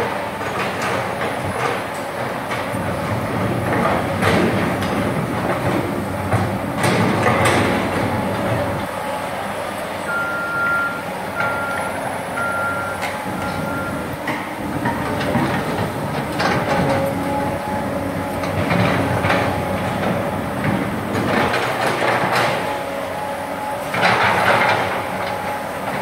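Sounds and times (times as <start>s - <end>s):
excavator running: 0.0s - 26.0s
warning alarm beeping: 10.1s - 14.2s.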